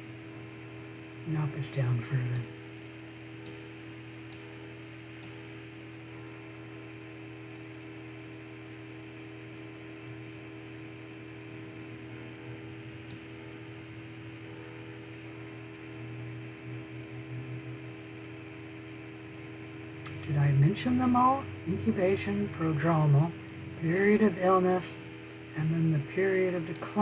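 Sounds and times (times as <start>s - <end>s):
electrical hum: 0.0s - 27.0s.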